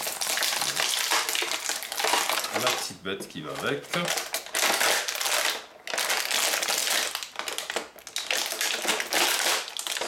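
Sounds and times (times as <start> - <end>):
plastic packaging crinkling: 0.0 - 10.0.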